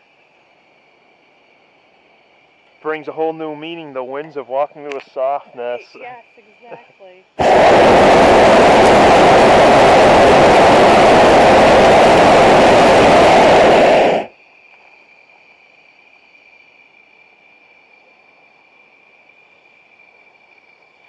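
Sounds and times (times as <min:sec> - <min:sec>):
faint high whine: 0:00.0 - 0:21.0
propane burner blast: 0:07.4 - 0:14.3.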